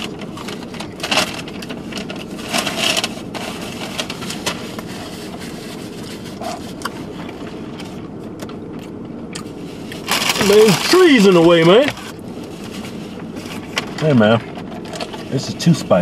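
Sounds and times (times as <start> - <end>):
car air conditioning hum: 0.0 - 16.0
packaging rustles and clicks: 10.0 - 12.0.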